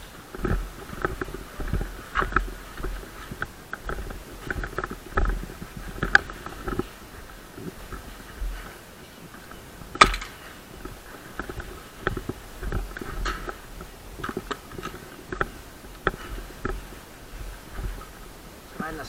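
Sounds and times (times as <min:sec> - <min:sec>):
loud crack: 0:09.9 - 0:10.5.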